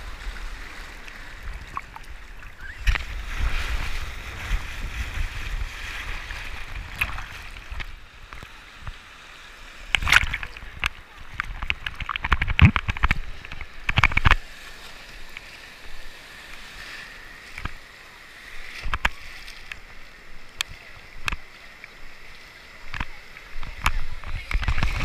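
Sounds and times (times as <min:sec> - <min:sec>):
sea water splashing and fizzing: 0:00.0 - 0:25.0
water slapping against board: 0:09.9 - 0:14.5.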